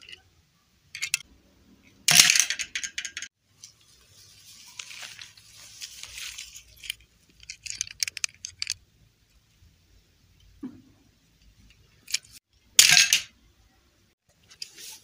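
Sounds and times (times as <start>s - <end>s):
hand rustling dry grass: 3.6s - 6.8s
crackly clicks of plastic figures: 6.0s - 8.8s.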